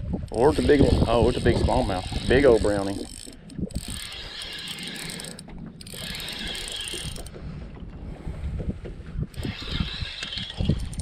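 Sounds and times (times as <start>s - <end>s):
wind rumbling on microphone: 0.0s - 11.0s
fishing reel whirring: 0.3s - 7.4s, 9.3s - 11.0s.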